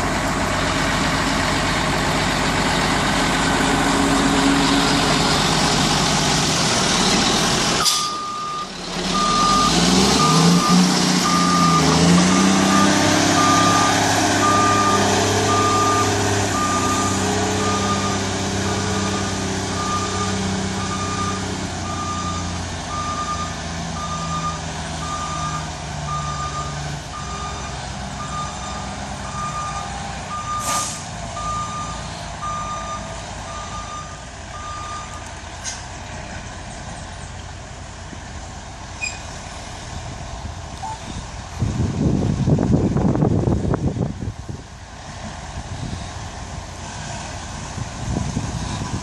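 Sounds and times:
diesel engine running: 0.0s - 49.0s
backup alarm beeping: 7.8s - 19.2s.

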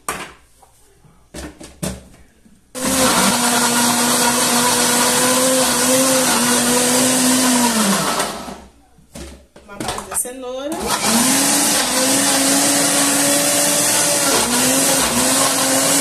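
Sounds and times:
blender motor running: 2.8s - 8.6s, 10.8s - 16.0s.

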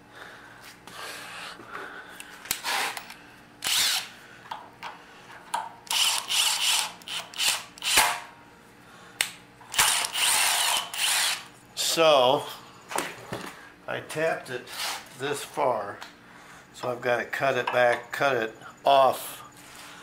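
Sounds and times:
cordless driver running bolt: 3.6s - 4.0s, 5.9s - 8.1s, 9.7s - 11.4s.

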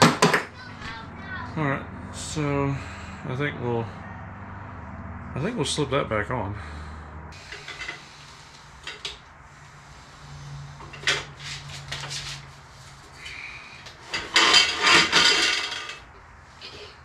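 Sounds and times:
metal scraping and rattling: 7.4s - 9.3s, 10.7s - 13.1s, 14.0s - 17.0s.

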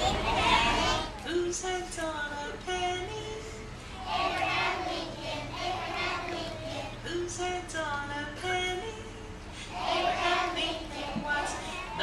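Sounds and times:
children singing together: 0.0s - 1.2s, 4.0s - 7.1s, 9.7s - 12.0s.

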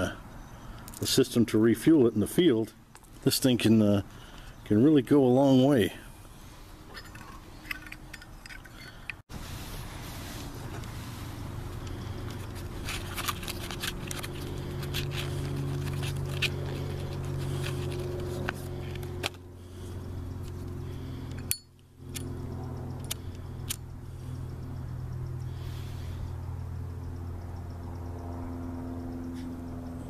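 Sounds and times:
low hum: 5.9s - 30.0s
cigarette pack crinkling: 11.9s - 19.4s
lighter flint wheel clicks: 21.2s - 23.9s.

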